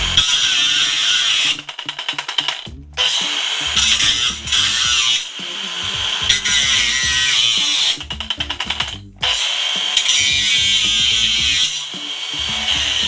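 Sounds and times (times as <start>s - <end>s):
angle grinder cutting: 0.0s - 13.0s.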